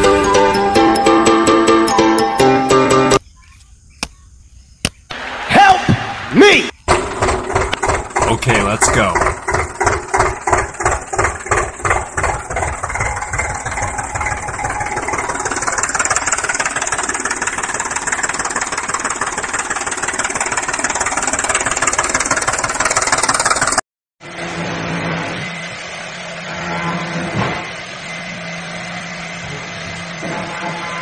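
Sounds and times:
tractor engine chugging: 0:00.0 - 0:03.2, 0:05.1 - 0:23.8.

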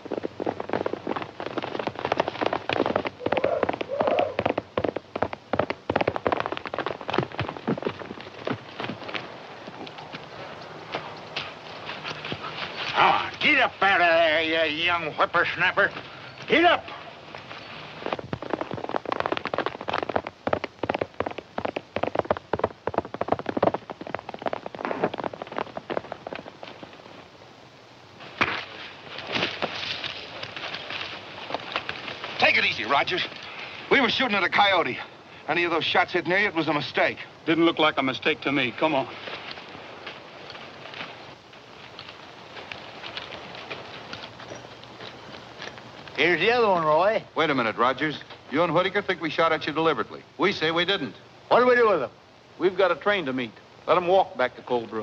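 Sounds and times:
horses galloping: 0:00.0 - 0:55.0
scuffling noise: 0:05.7 - 0:13.5.

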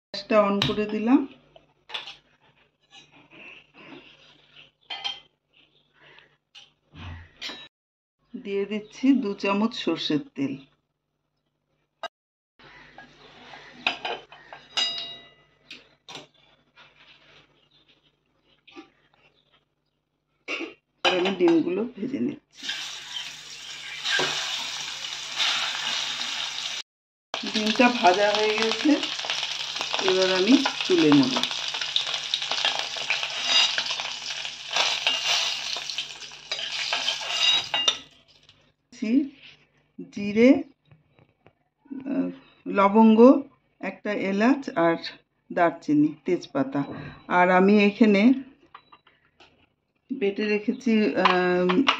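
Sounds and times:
hot oil sizzling: 0:22.6 - 0:26.8, 0:27.4 - 0:38.5
metal pan scraping on burner: 0:31.4 - 0:38.0.

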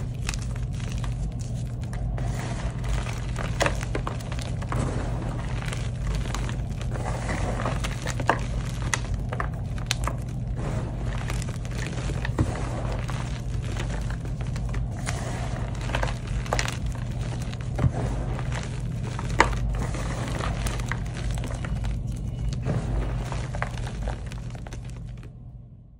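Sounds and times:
chalk grinding crunchily: 0:00.0 - 0:25.1
chalk chunks snapping: 0:00.0 - 0:25.3.

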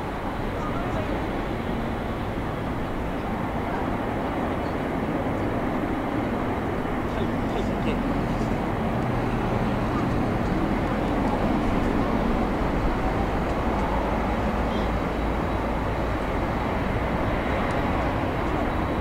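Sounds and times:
jet engines rumbling: 0:00.0 - 0:19.0.

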